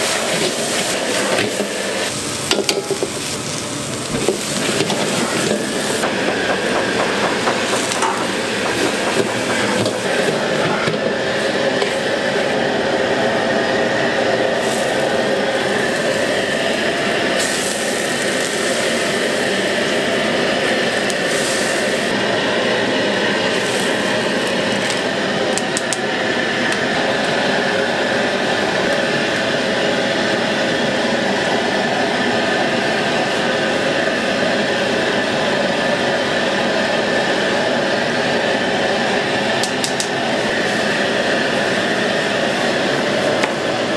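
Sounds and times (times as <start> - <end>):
food sizzling and bubbling: 0.0 - 26.5
gas burner roaring: 0.0 - 43.9.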